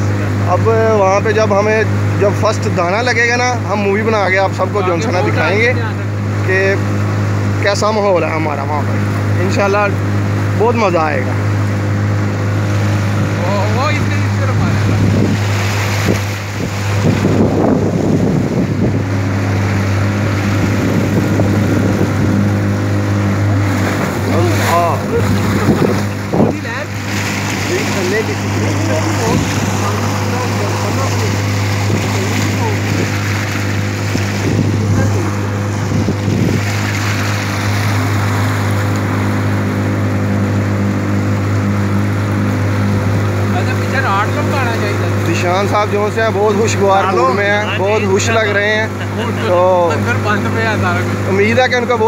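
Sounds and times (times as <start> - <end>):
motorboat engine drone: 0.0 - 52.0
water rushing past hull: 0.0 - 52.0
wind buffeting microphone: 11.4 - 43.5.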